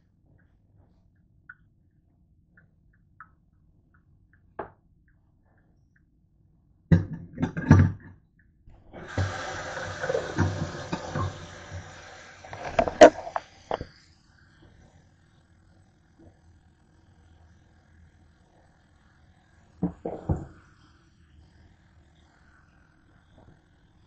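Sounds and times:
tap running into steel sink: 0:09.0 - 0:13.9.

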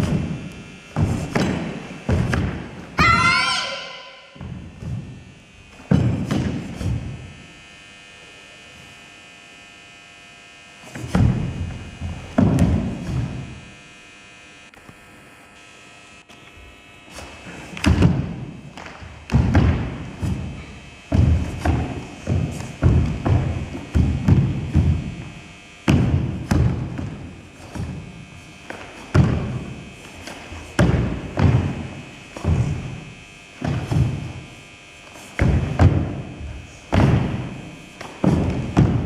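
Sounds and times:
bare feet stamping on wooden floor: 0:00.0 - 0:03.0, 0:04.4 - 0:07.2, 0:10.9 - 0:13.6, 0:17.2 - 0:39.0.

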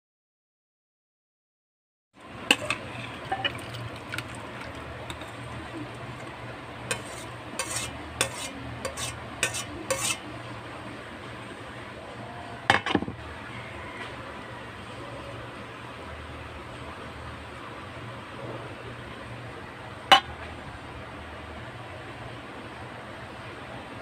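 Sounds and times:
metal spoon scraping a pot: 0:02.5 - 0:03.8, 0:05.1 - 0:05.5, 0:06.8 - 0:10.3.

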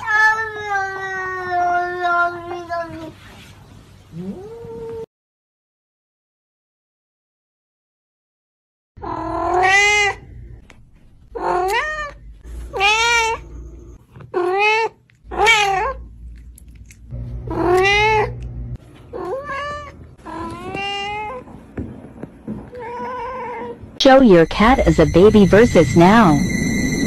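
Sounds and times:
cat meowing: 0:09.0 - 0:10.2, 0:11.4 - 0:13.5, 0:14.3 - 0:16.0, 0:17.5 - 0:18.4, 0:19.1 - 0:21.4.

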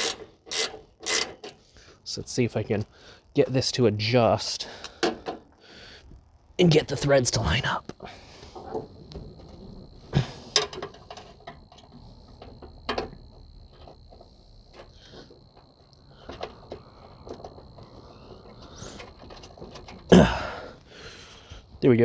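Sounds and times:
metal clicks of hand tools: 0:00.0 - 0:01.6.

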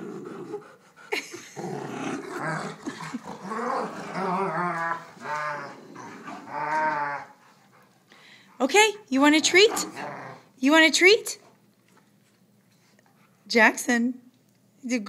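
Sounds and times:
dogs growling in play: 0:00.0 - 0:07.9, 0:09.2 - 0:10.6.

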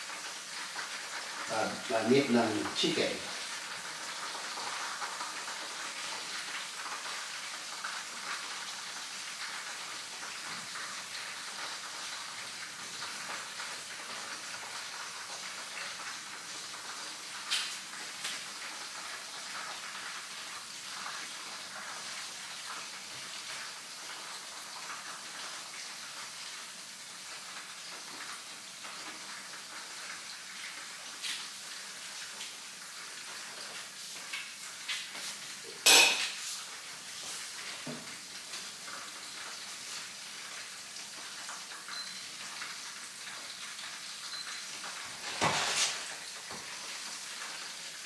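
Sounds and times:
chicken sizzling in oil: 0:00.0 - 0:48.0
pans and utensils clattering: 0:35.8 - 0:36.5, 0:45.1 - 0:46.2.

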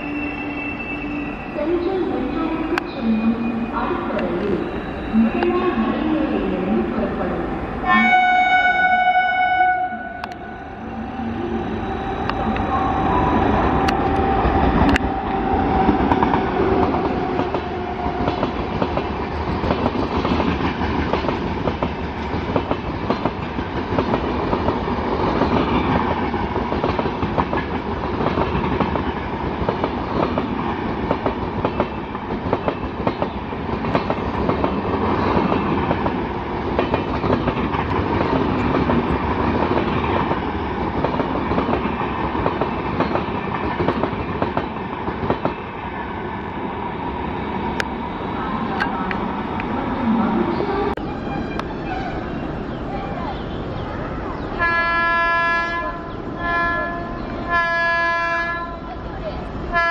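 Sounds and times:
locomotive horn: 0:07.8 - 0:10.4, 0:54.6 - 0:58.8.

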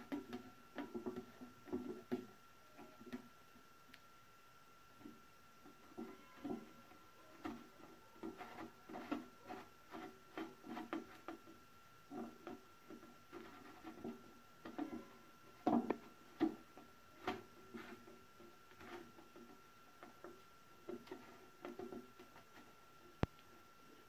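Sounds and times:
faint steady high tone: 0:02.5 - 0:03.3, 0:05.0 - 0:08.3, 0:14.7 - 0:15.9.

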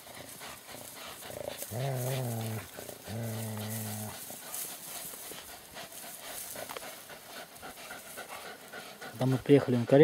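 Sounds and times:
dog growling: 0:00.7 - 0:04.4.

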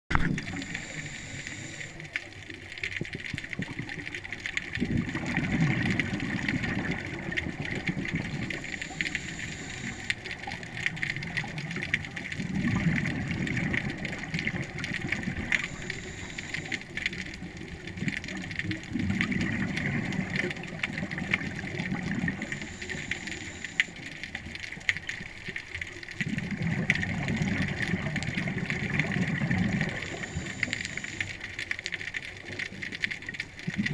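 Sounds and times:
regulator bubbles rumbling: 0:00.1 - 0:33.9
underwater crackle of clicks: 0:00.1 - 0:33.9.

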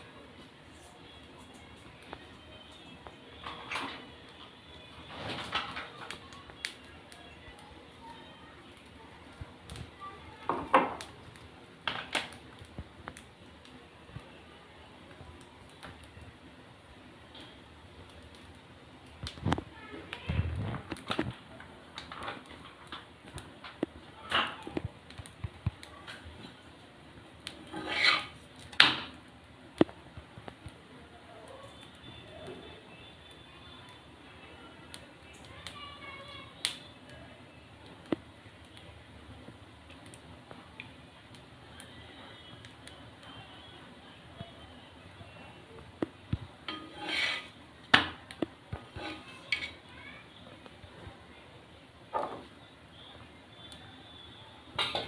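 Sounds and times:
utensil scraping on griddle: 0:27.5 - 0:29.0, 0:46.6 - 0:48.2, 0:48.8 - 0:49.9
utensils clinking on cookware: 0:46.6 - 0:47.6.

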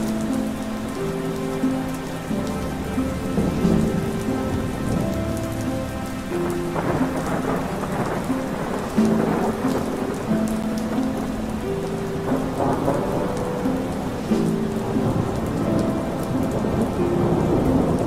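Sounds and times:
soft held musical tones: 0:00.0 - 0:18.0
steady rain: 0:00.0 - 0:18.0
rumbling thunder: 0:02.7 - 0:05.6, 0:06.3 - 0:11.3, 0:12.2 - 0:18.0.

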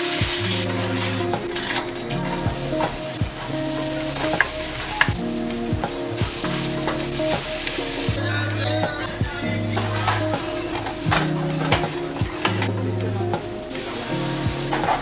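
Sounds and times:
wooden spatula scraping a pan: 0:00.0 - 0:08.1, 0:09.8 - 0:12.7
onion and garlic sizzling in a pan: 0:00.0 - 0:08.2, 0:09.3 - 0:15.0.

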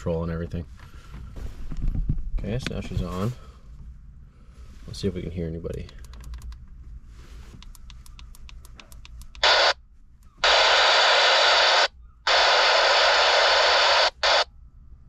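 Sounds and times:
radio channel clicks: 0:07.6 - 0:14.5
radio static hiss: 0:09.4 - 0:09.8, 0:10.4 - 0:14.5.

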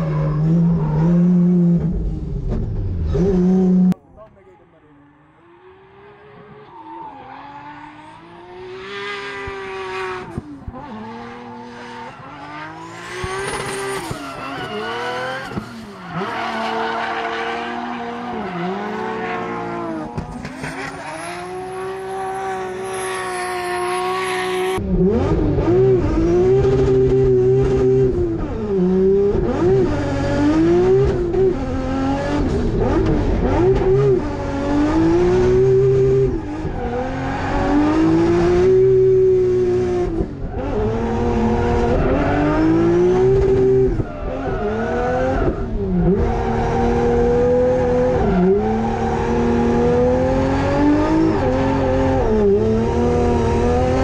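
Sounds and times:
car engine revving: 0:04.7 - 0:54.0
tyre squeal: 0:13.3 - 0:19.1.

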